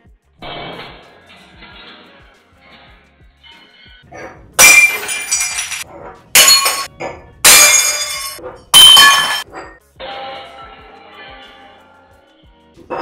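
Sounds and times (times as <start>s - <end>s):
glasses smashing on tile floor: 4.6s - 5.8s, 6.4s - 9.7s
tinkle of glass shards: 4.6s - 5.8s, 6.4s - 6.9s, 7.5s - 9.7s.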